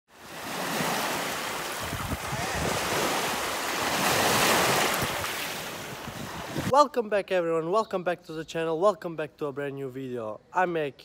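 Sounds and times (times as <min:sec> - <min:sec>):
waves washing up a pebble beach: 0:00.2 - 0:06.4
wind buffeting microphone: 0:01.7 - 0:06.7.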